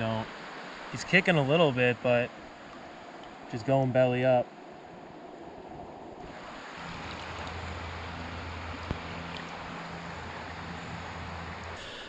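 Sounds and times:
low steady hum: 0.0s - 12.0s
river rippling over rocks: 0.0s - 12.0s.

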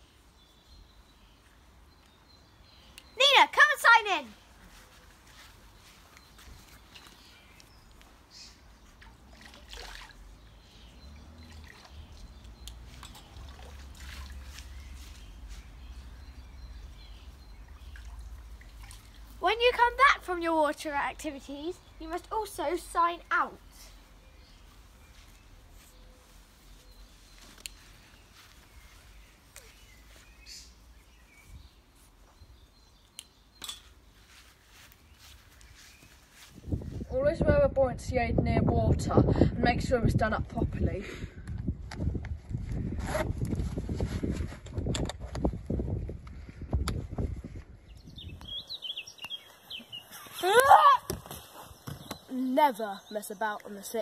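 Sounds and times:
birds chirping: 0.0s - 37.2s, 46.3s - 54.0s
faint high chirps and clicks: 1.4s - 3.2s, 5.8s - 8.6s, 11.7s - 13.4s, 26.8s - 30.8s, 32.2s - 33.9s, 47.9s - 50.7s
wind rumble on microphone: 36.5s - 48.7s.

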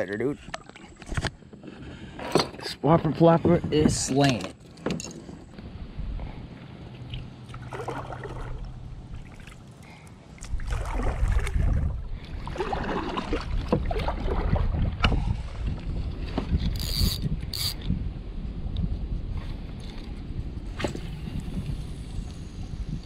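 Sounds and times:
wind rumbling on microphone: 2.8s - 23.0s
paddle splashing in water: 7.5s - 9.6s, 10.4s - 15.1s.

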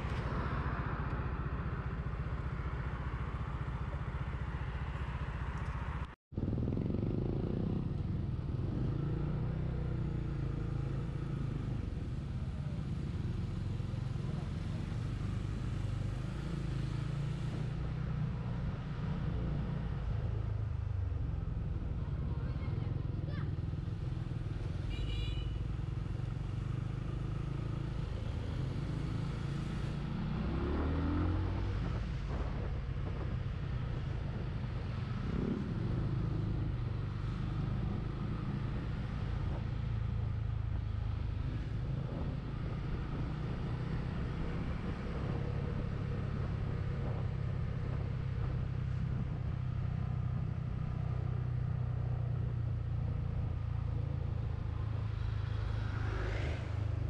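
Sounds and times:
motorcycle engine running: 6.3s - 10.9s
wind rush: 54.6s - 57.0s.

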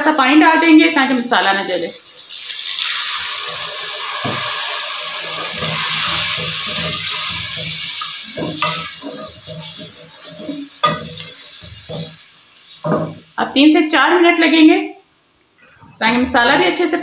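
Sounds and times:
water hissing in hot oil: 0.0s - 14.2s
wooden spoon scraping a pot: 5.6s - 13.2s.

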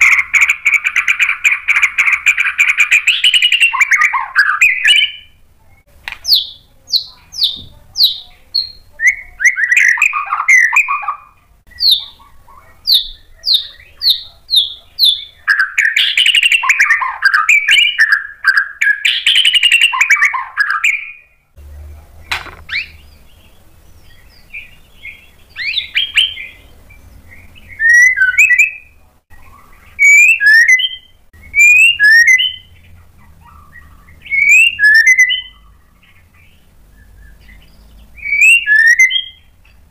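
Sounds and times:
bird singing: 0.0s - 39.9s
sharp click: 22.3s - 22.8s.

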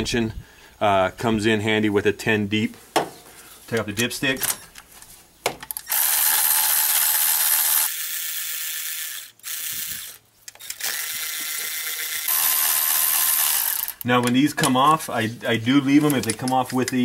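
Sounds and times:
electric ratchet motor whirring: 5.8s - 14.1s.

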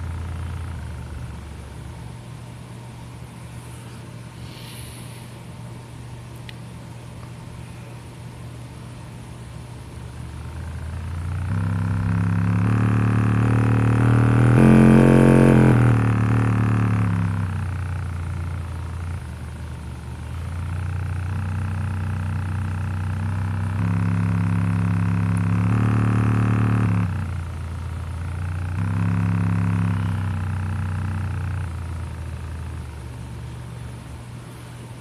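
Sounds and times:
speaker buzzing bass drone: 0.0s - 2.2s, 9.6s - 34.0s.

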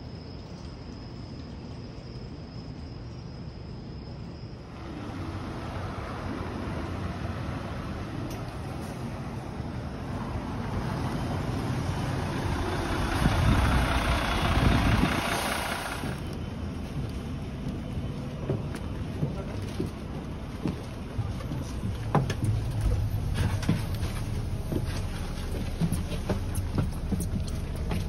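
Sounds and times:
bus driving past: 4.6s - 28.0s
footsteps on pavement: 16.2s - 28.0s.

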